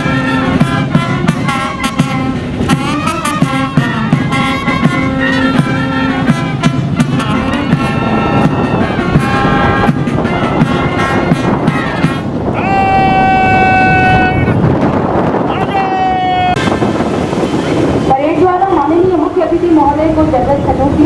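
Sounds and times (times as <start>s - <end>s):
brass notes in a tune: 0.0s - 12.5s, 13.5s - 15.4s.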